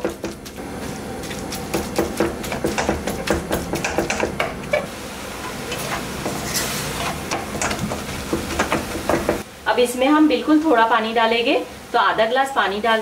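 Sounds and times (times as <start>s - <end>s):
meat sizzling: 0.0s - 9.4s
wooden spatula scraping metal pan: 4.7s - 8.8s.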